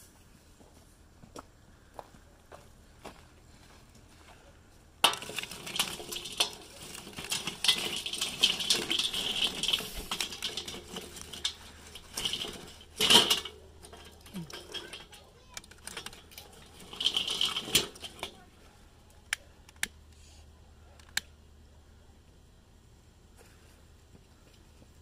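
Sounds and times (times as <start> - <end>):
utensils and dishes clinking: 5.1 - 18.4.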